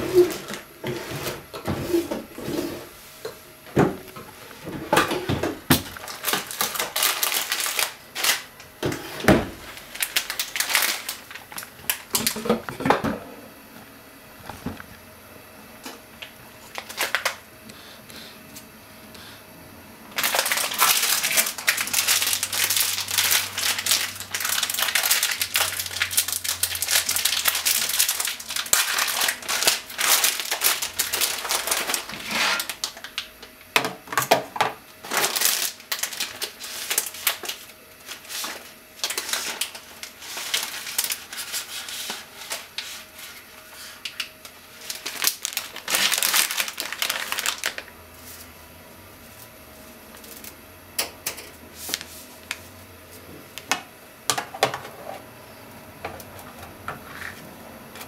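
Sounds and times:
thin plastic crinkling and clicking: 5.8 - 8.7, 9.8 - 12.8, 15.9 - 17.4, 20.2 - 33.5, 35.0 - 42.9, 44.0 - 47.9.

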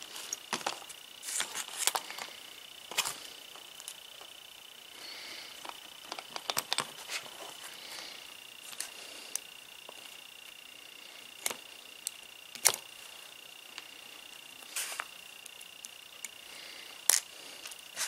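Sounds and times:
steady high-pitched tone: 0.0 - 18.0
small tools clicking and tapping: 5.6 - 7.0.

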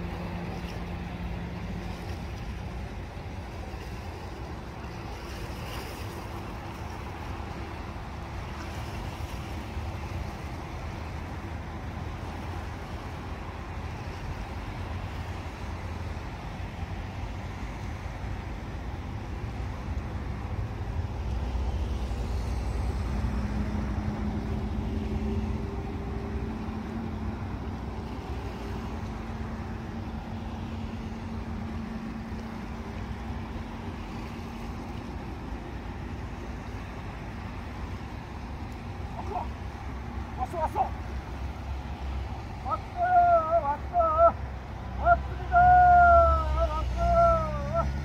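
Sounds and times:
low outdoor rumble: 0.0 - 48.0
passing engine hum: 0.0 - 48.0.

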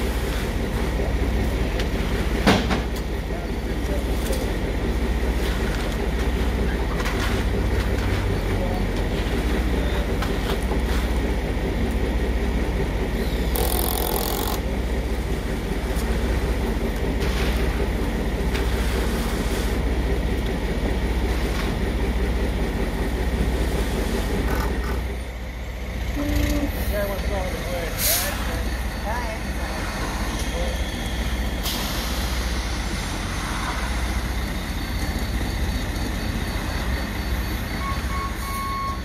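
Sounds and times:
truck diesel engine droning: 0.0 - 39.0.

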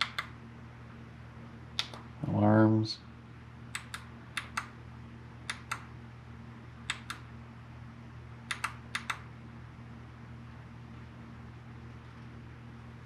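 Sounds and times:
low electrical hum: 0.0 - 13.0
push buttons clicking: 3.7 - 4.7, 6.9 - 7.2, 8.5 - 9.2.

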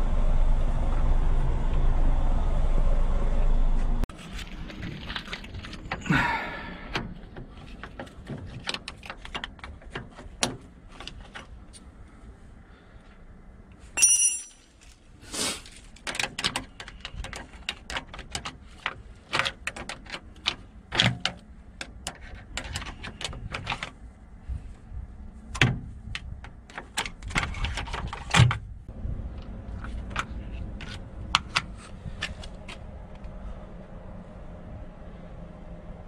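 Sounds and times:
metal tools clinking and scraping: 14.0 - 15.0.

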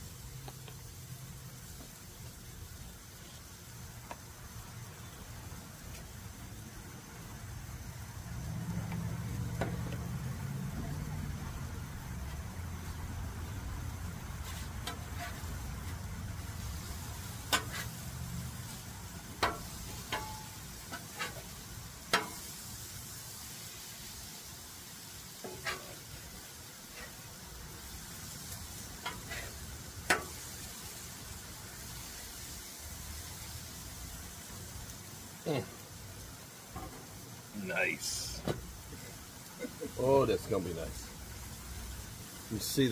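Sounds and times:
food sizzling on griddle: 0.0 - 42.9
metal spatula scraping griddle: 14.4 - 18.8, 19.4 - 22.6, 25.4 - 31.0.

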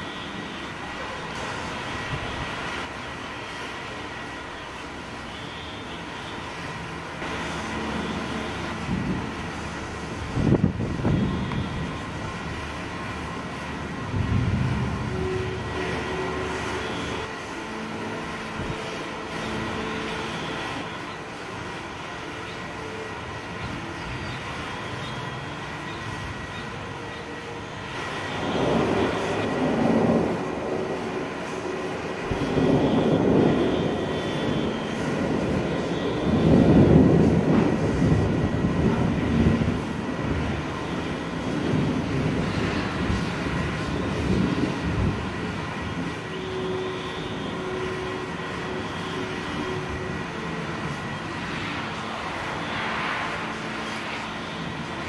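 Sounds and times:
distant thunder rumbling: 8.6 - 16.7, 27.9 - 46.7.

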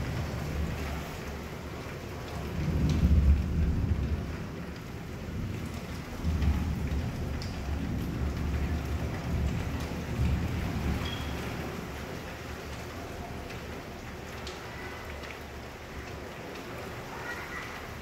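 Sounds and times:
thunder rumbling: 0.0 - 12.0
heavy rain pouring: 0.0 - 18.0.

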